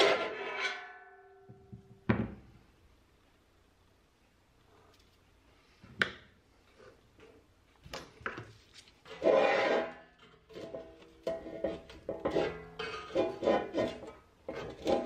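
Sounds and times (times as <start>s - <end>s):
loud metal scrape: 0.0s - 1.2s, 9.0s - 15.0s.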